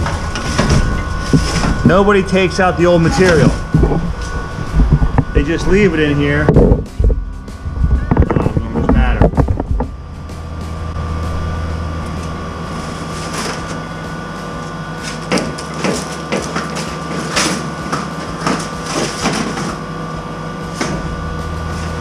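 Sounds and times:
sheet metal clanks and crunches: 0.0s - 7.3s, 15.0s - 19.9s
mechanical hum: 0.0s - 22.0s.

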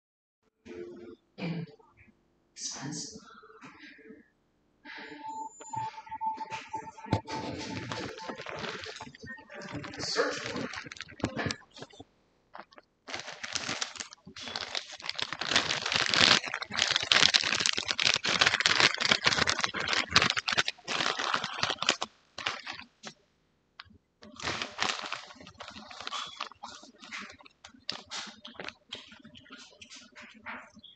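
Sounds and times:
crackling and clicking objects: 5.7s - 23.2s, 23.8s - 30.9s.

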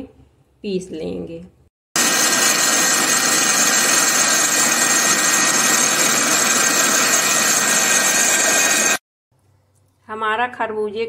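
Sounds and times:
mixer grinder motor whine: 2.0s - 9.0s.

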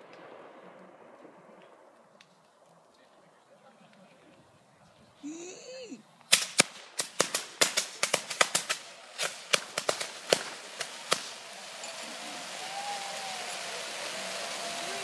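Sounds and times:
firework bangs: 0.0s - 2.5s, 6.3s - 15.0s
firework hiss: 6.3s - 15.0s
firework whistle: 10.4s - 15.0s.

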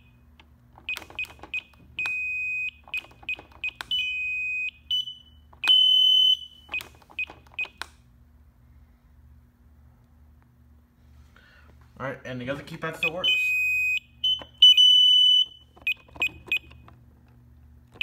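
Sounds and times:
keypad beeping: 0.8s - 7.9s, 13.0s - 16.9s.

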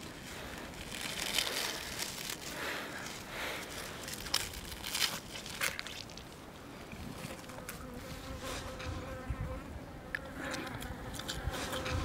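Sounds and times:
spiny skin being torn apart: 0.7s - 3.2s, 3.8s - 6.4s.

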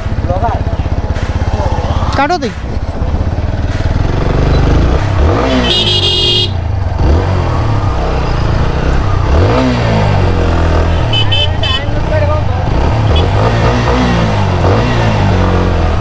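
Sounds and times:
motorcycle engine revving: 0.0s - 16.0s
high horn: 5.4s - 6.6s.

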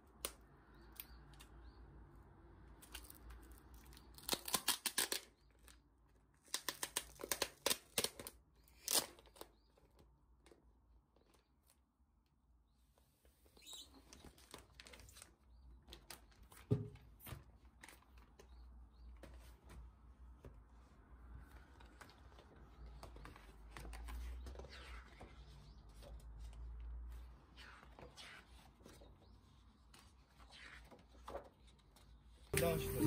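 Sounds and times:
paper and plastic rustling: 13.9s - 18.5s.

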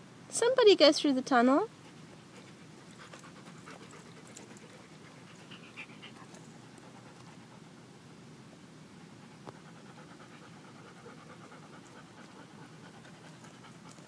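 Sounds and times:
dog panting: 1.8s - 7.8s, 9.0s - 14.0s.

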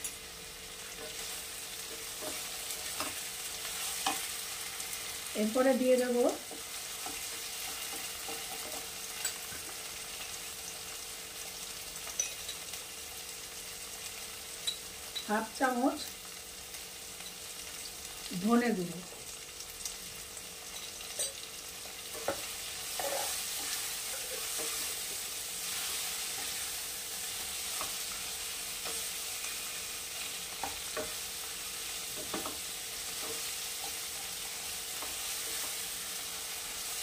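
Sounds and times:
masala sizzling in oil: 0.0s - 37.0s
wooden spatula scraping pan: 22.1s - 28.0s.

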